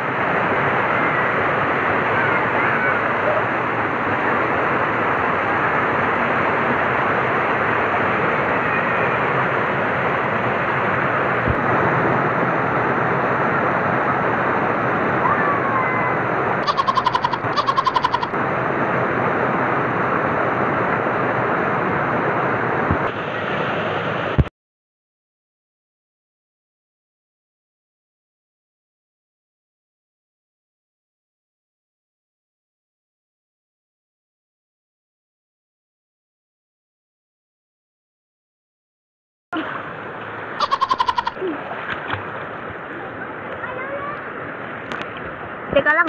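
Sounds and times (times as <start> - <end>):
water rushing over weir: 0.0 - 24.5, 39.6 - 46.0
faint children's voices: 0.8 - 3.6, 8.0 - 9.4, 15.1 - 18.3, 42.8 - 44.4.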